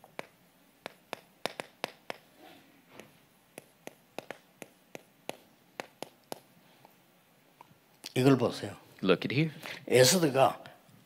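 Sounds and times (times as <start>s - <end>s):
chalk tapping and scraping blackboard: 0.0s - 2.3s, 3.0s - 6.5s.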